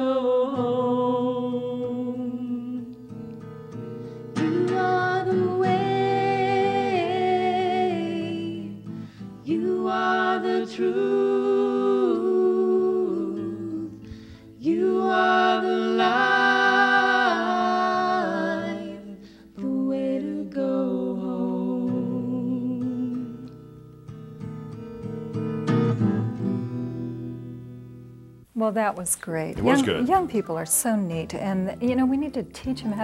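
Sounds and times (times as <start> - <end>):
woman singing: 0.0 - 3.2, 4.4 - 23.6, 29.6 - 33.0
acoustic guitar: 0.0 - 33.0
man singing harmony: 29.6 - 30.1.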